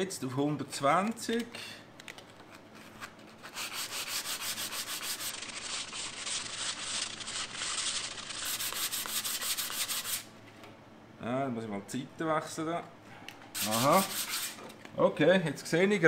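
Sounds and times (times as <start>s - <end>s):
sandpaper rasping on metal panel: 3.4s - 10.3s, 13.6s - 14.6s.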